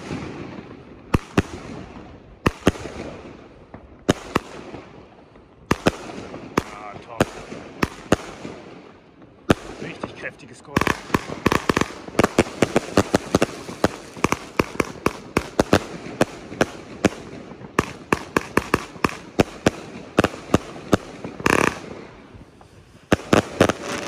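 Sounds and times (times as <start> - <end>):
firework battery bangs: 9.2 - 24.0.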